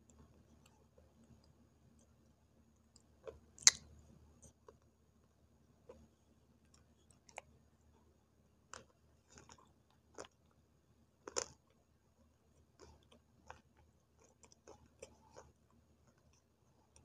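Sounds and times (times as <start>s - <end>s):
clay sticks being chewed: 8.7s - 10.6s, 11.2s - 11.8s, 12.6s - 17.0s.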